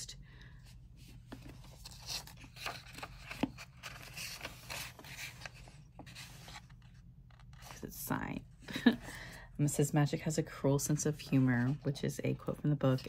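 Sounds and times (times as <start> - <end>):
book pages rustling: 0.9 - 8.0, 10.9 - 13.0.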